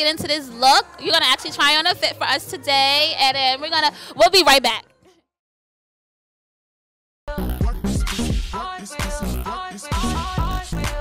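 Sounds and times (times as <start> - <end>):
music with heavy bass beat: 7.3 - 11.0.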